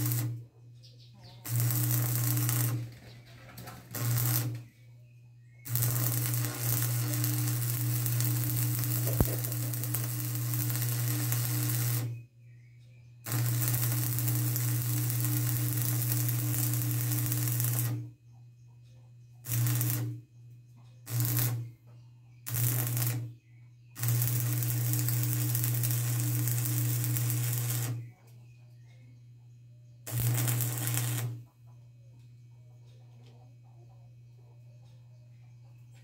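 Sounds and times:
electric arc welding crackle: 0:00.0 - 0:00.4, 0:01.4 - 0:04.7, 0:05.7 - 0:12.2, 0:13.3 - 0:18.1, 0:19.4 - 0:20.2, 0:21.1 - 0:21.7, 0:22.5 - 0:23.3, 0:24.0 - 0:28.1, 0:30.1 - 0:31.4.

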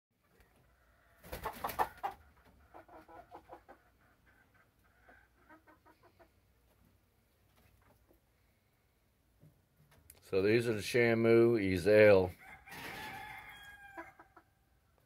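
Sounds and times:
chickens clucking: 0:00.2 - 0:08.3, 0:12.8 - 0:14.5.

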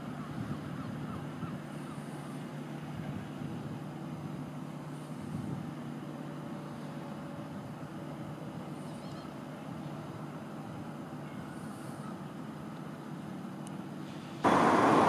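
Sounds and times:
diesel engine running: 0:14.4 - 0:15.0.

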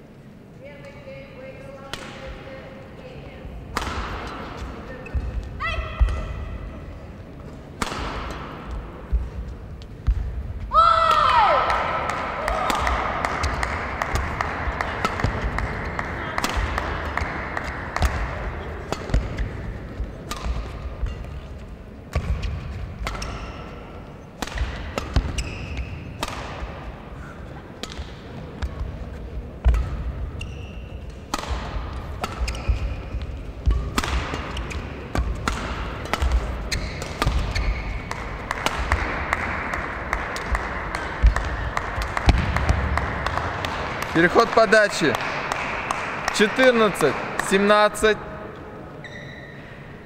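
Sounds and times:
racket striking shuttlecock: 0:03.7 - 0:06.5, 0:07.7 - 0:10.3, 0:11.1 - 0:21.5, 0:22.1 - 0:26.9, 0:27.8 - 0:29.0, 0:29.6 - 0:47.7.

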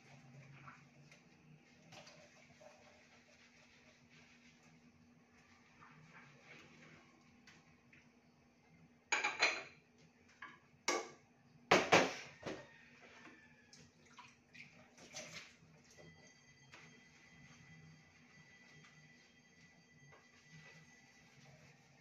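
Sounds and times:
dishes and utensils clattering: 0:09.1 - 0:09.8.

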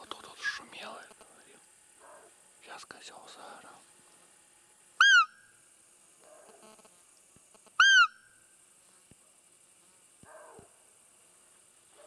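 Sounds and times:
deer call squeak: 0:05.0 - 0:05.4, 0:07.8 - 0:08.2.

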